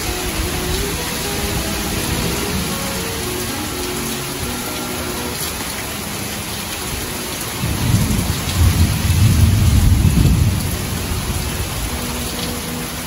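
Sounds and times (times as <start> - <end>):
heavy rain falling: 0.0 - 13.0
low rumble of thunder: 7.6 - 12.0.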